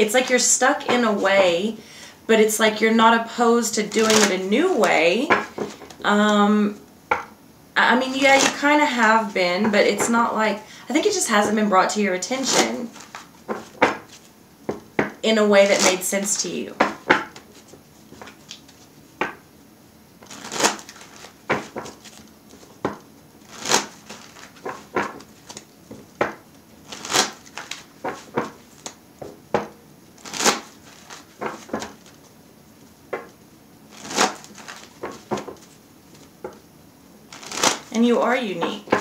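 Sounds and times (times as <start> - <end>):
cards being shuffled: 3.8 - 6.4, 8.1 - 8.7, 12.5 - 14.3, 15.0 - 19.3, 20.2 - 32.3, 33.1 - 36.6, 37.3 - 39.0.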